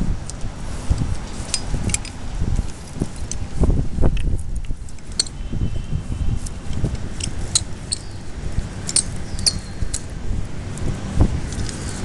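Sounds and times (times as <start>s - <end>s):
sharp metallic clicks: 4.1s - 5.4s, 8.8s - 10.9s.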